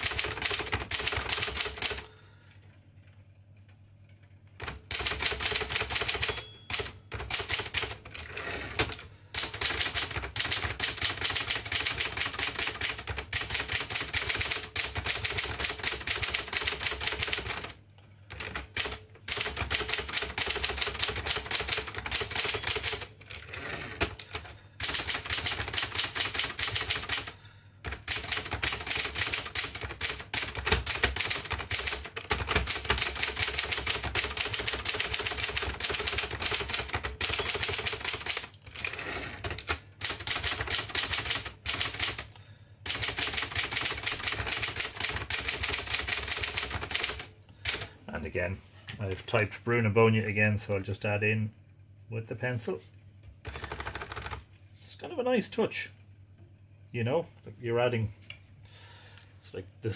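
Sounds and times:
manual typewriter clatter: 0.0 - 2.1, 4.6 - 47.9, 53.4 - 54.4.

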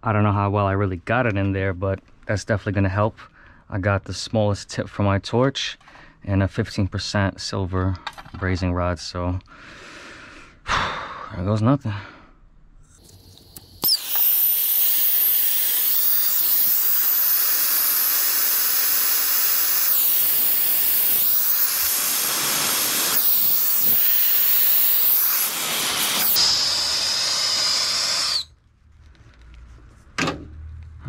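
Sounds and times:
torch flame hissing: 13.1 - 28.5.

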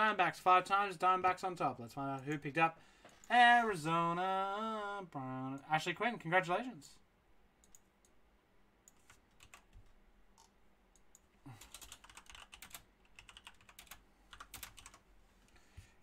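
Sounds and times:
faint computer keyboard typing: 7.6 - 8.2, 8.8 - 15.1.

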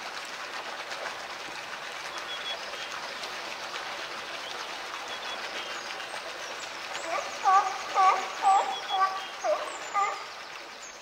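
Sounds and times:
water splashing and lapping: 0.0 - 11.0.

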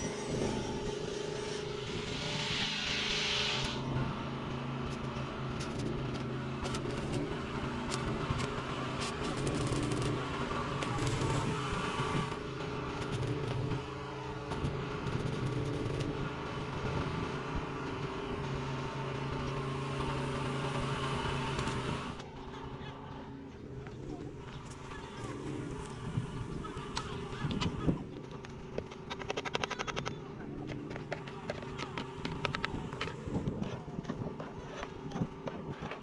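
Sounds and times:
arc welding crackles: 0.0 - 17.7
low mechanical hum: 0.0 - 36.0.

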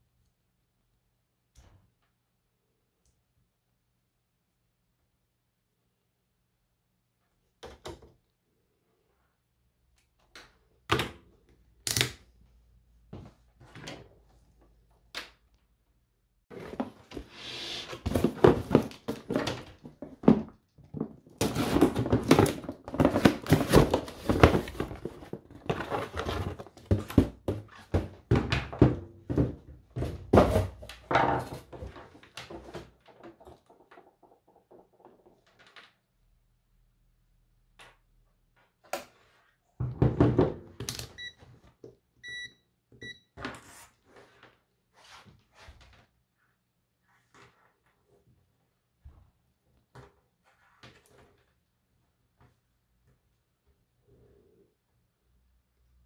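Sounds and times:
plastic parts knocking and rattling: 18.1 - 36.1.

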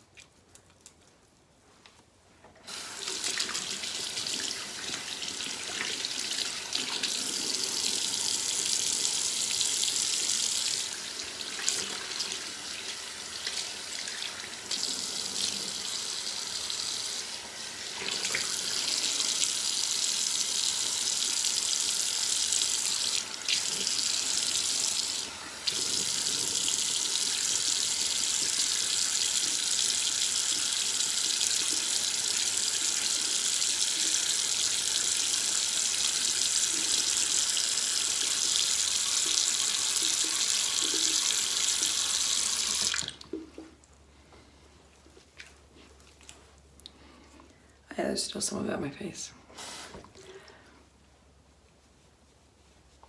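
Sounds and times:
bathroom faucet running: 2.6 - 43.9.

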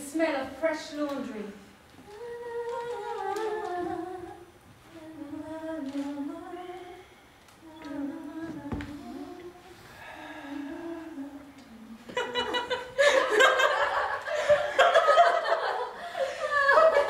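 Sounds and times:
person humming a slow melody: 2.0 - 12.1.

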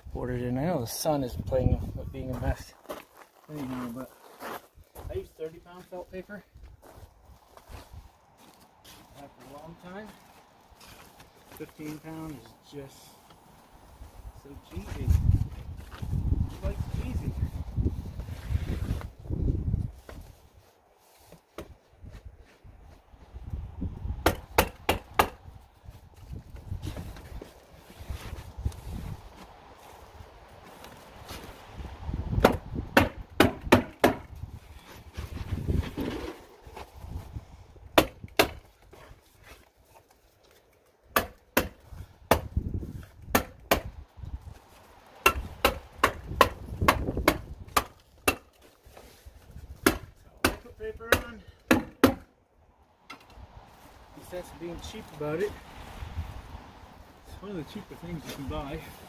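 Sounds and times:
sharp hammer strikes: 24.2 - 25.4, 43.3 - 43.9, 45.2 - 48.4.

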